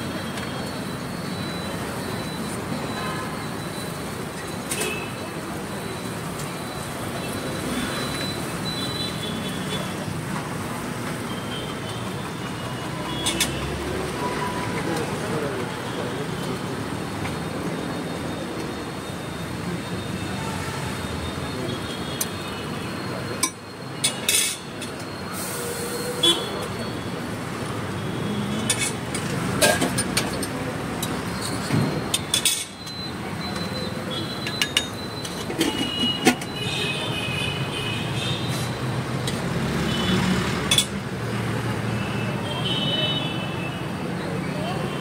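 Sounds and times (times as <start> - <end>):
traffic passing: 0.0 - 45.0
people talking: 11.6 - 37.8, 40.7 - 45.0.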